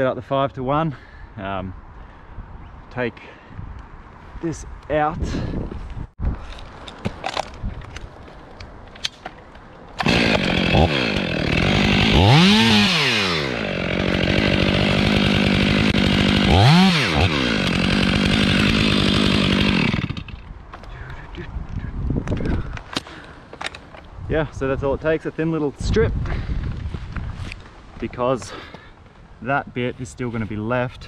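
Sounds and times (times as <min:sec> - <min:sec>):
chainsaw cutting: 0:10.0 - 0:20.4.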